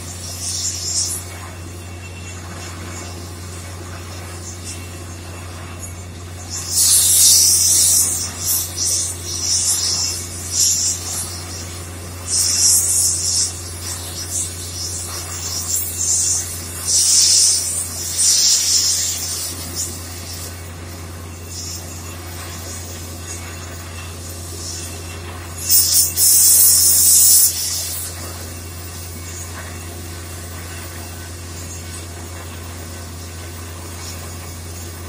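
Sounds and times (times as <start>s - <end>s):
compressed air hissing gushes: 0.0s - 1.5s, 5.6s - 23.4s, 24.2s - 28.5s
drilling rig drone: 0.0s - 35.0s.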